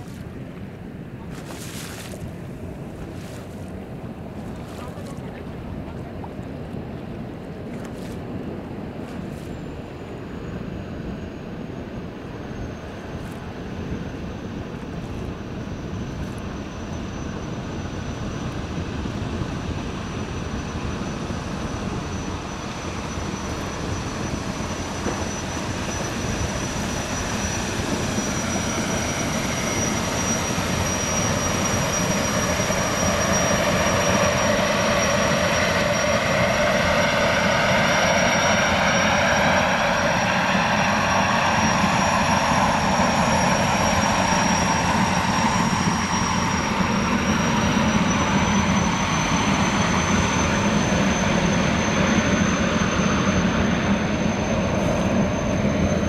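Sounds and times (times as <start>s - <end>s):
rushing water: 0.0s - 8.4s
turbine engine high whine: 0.0s - 56.0s.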